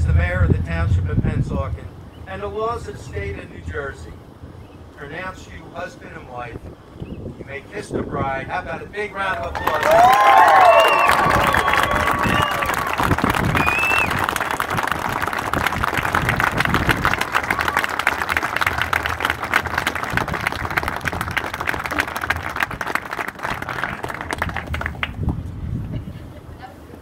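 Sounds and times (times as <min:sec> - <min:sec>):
voices cheering: 0:09.3 - 0:24.9
crowd applauding: 0:09.4 - 0:25.4.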